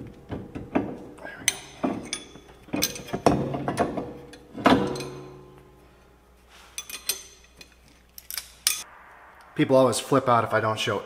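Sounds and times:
metal tools clanking on caliper: 0.1 - 5.8, 6.7 - 8.8.

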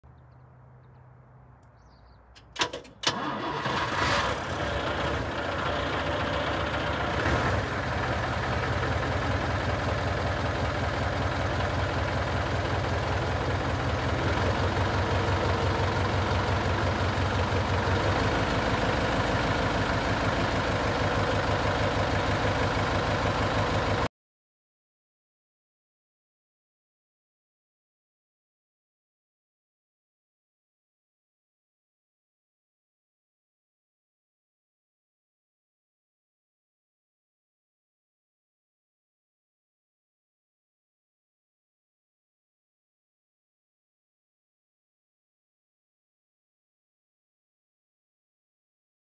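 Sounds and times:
diesel truck engine idling: 2.4 - 24.1
starter motor cranking: 2.6 - 5.2.

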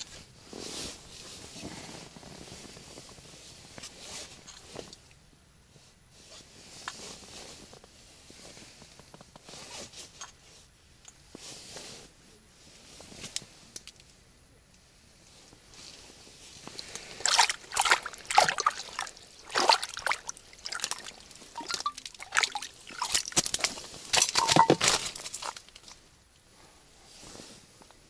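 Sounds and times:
fabric rustling: 15.8 - 26.1.

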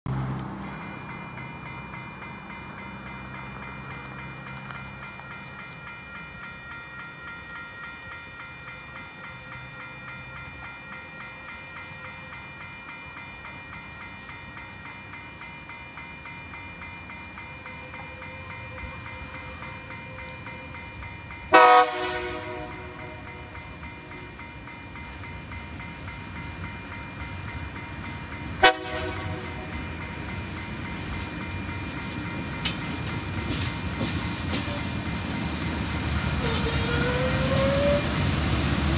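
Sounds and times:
diesel locomotive rumble: 0.1 - 38.9
locomotive horn: 21.5 - 23.5, 28.6 - 29.8, 36.4 - 38.2.

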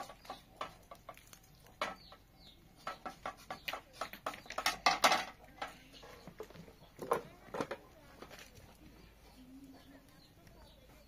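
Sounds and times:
bird chirping: 0.0 - 4.8.

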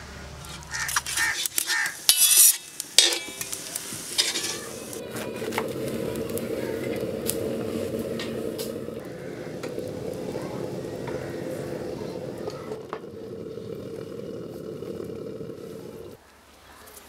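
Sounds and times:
utensils clinking: 0.8 - 10.0
chicken sizzling on griddle: 3.2 - 12.7.

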